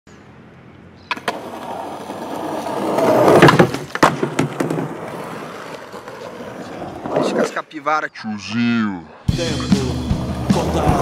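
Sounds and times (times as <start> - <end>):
skateboard wheels rolling on concrete: 0.3 - 7.8, 9.7 - 11.0
skateboard clacks: 1.1 - 7.2.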